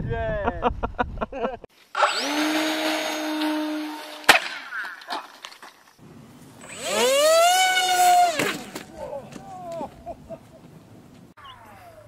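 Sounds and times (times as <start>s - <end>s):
model plane motor spooling up: 1.9s - 4.3s, 6.6s - 8.6s
model airplane motor whining: 2.0s - 4.3s, 6.6s - 8.7s
sharp crack: 4.1s - 5.8s, 8.1s - 9.9s.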